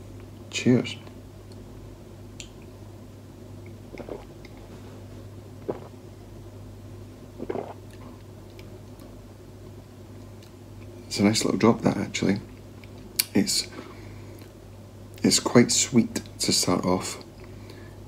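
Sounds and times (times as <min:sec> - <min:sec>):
steady low hum: 0:00.0 - 0:18.0
man gulping drink: 0:03.7 - 0:04.7, 0:05.6 - 0:06.0, 0:07.4 - 0:08.3.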